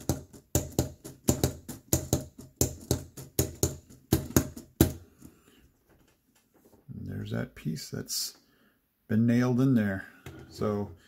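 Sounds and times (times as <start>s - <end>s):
plastic hammer clacking: 0.0s - 5.1s.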